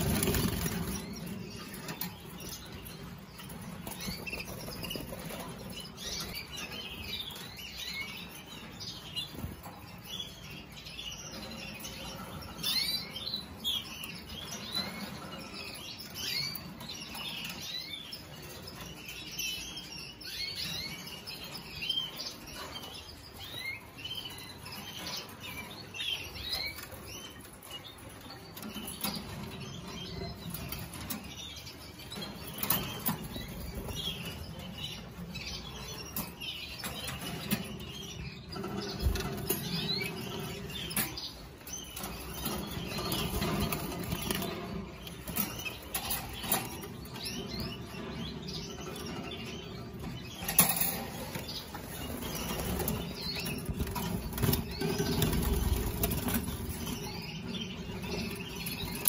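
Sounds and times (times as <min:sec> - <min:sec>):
canaries chirping: 0:00.0 - 0:59.0.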